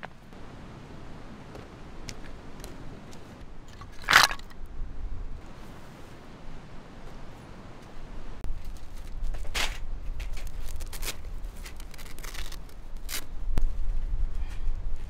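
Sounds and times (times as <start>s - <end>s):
fabric rustling on pebbles: 8.5s - 13.8s.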